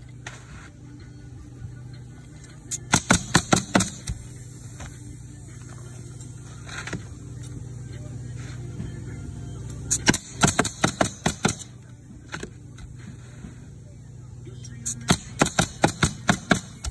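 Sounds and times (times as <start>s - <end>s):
steady low hum: 0.0s - 16.9s
pneumatic nailer shots: 2.7s - 5.0s, 9.9s - 12.5s, 14.8s - 16.9s.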